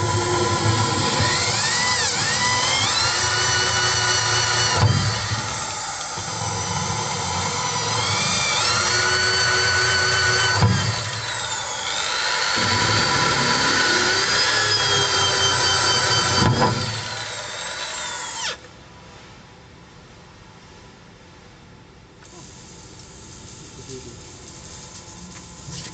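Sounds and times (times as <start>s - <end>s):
electric drill whining: 0.0s - 18.7s.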